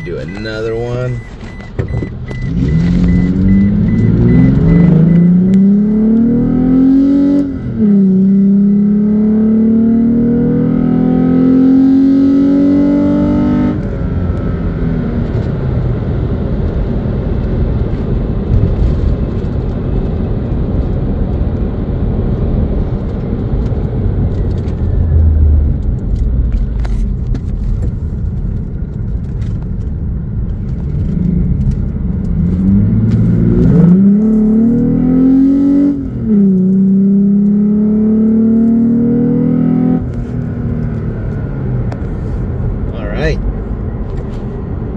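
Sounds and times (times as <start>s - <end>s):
road noise: 0.0s - 44.9s
truck engine revving: 2.3s - 10.6s.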